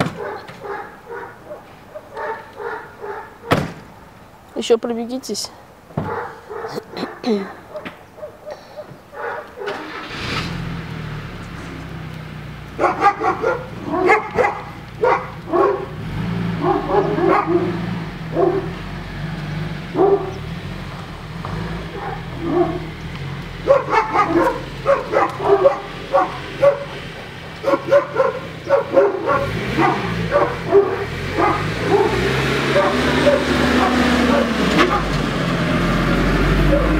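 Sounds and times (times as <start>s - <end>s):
dog barking: 0.0s - 3.6s, 6.0s - 10.0s, 12.8s - 16.0s, 16.6s - 18.8s, 19.9s - 20.4s, 21.8s - 23.0s, 23.6s - 27.0s, 27.6s - 35.2s, 36.7s - 36.9s.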